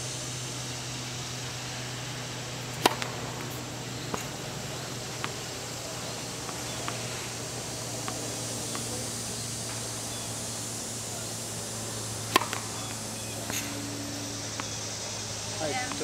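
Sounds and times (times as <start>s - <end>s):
low hum: 0.0s - 16.0s
tennis racket hitting ball: 2.6s - 9.9s, 11.8s - 14.8s
ball bouncing: 2.8s - 5.5s, 12.3s - 13.8s, 15.8s - 16.0s.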